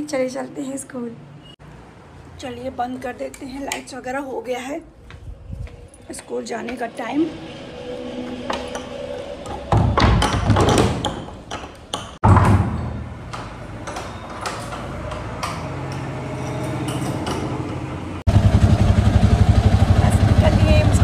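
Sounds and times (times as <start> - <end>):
door clicks and knocks: 8.5 - 16.1.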